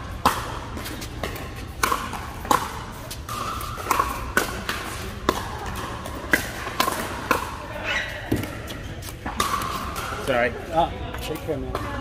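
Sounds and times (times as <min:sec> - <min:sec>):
paddles hitting plastic ball: 0:00.1 - 0:07.5, 0:08.3 - 0:10.4.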